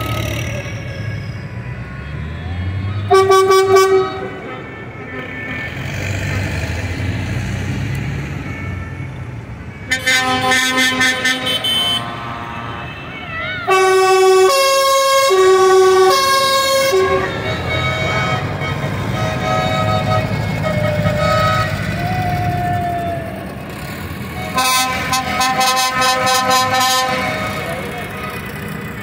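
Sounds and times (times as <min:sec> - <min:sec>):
choppy horn toots: 0:00.0 - 0:08.9, 0:09.7 - 0:29.0
tractor engines running: 0:00.0 - 0:29.0
loud multi-note horn: 0:03.0 - 0:07.4, 0:09.9 - 0:22.2, 0:24.3 - 0:28.7.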